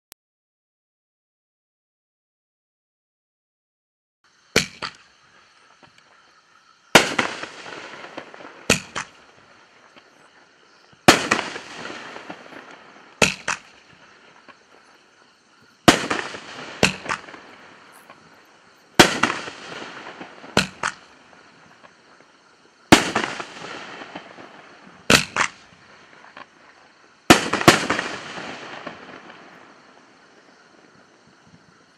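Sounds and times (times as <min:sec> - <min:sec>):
fireworks bangs: 0:06.9 - 0:31.6
fireworks pop: 0:12.2 - 0:14.6, 0:15.8 - 0:18.3, 0:20.6 - 0:21.1, 0:25.1 - 0:25.6.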